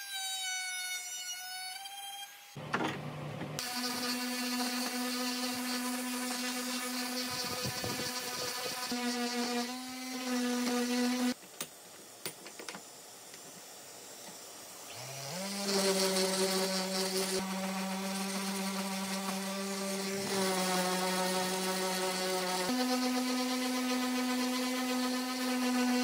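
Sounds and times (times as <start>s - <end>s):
electric power tool motor whining: 3.6s - 11.4s.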